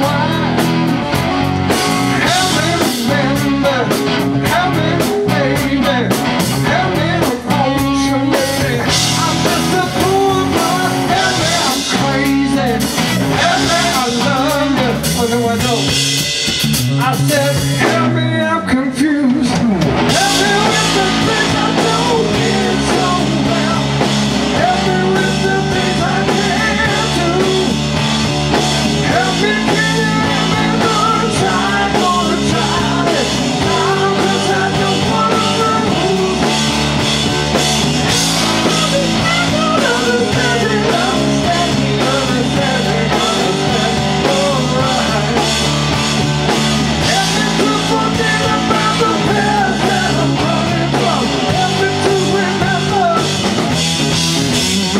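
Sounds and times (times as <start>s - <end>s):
bass line: 0.0s - 54.9s
drums: 0.0s - 54.9s
electric guitar: 0.0s - 54.9s.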